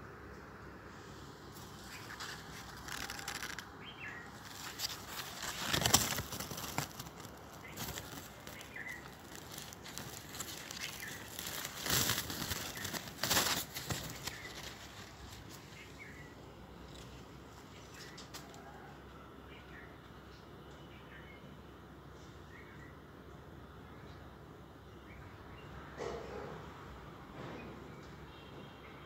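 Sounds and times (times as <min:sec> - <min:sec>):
rustling noise bursts: 0:00.9 - 0:16.2.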